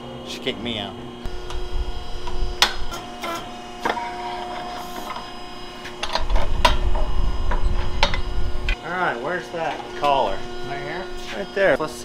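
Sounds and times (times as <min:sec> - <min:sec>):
hydraulic pump humming: 0:00.0 - 0:12.0
low rumble: 0:06.2 - 0:08.8.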